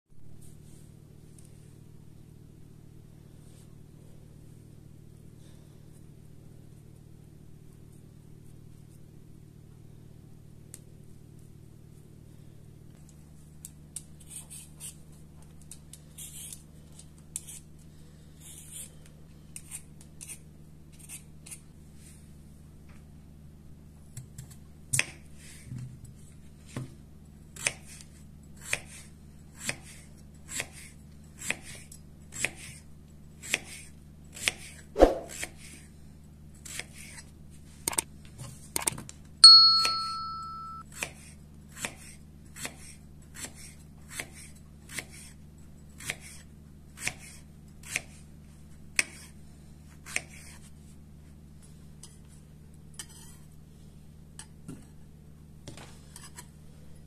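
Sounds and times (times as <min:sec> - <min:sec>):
knife slicing on a cutting board: 0:33.4 - 0:35.7
bright ding: 0:39.4 - 0:40.8.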